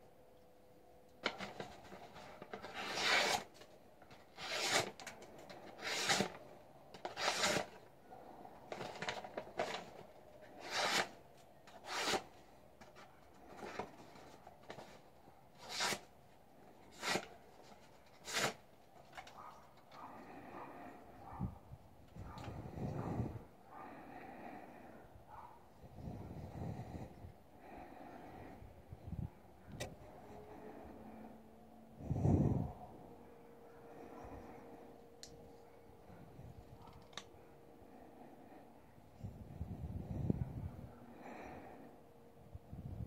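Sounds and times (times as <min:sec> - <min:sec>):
knife slicing paper: 0:02.5 - 0:03.6, 0:04.3 - 0:05.2, 0:05.8 - 0:06.4, 0:07.1 - 0:07.8, 0:10.6 - 0:12.3, 0:15.6 - 0:16.1, 0:16.9 - 0:17.3, 0:18.1 - 0:18.6.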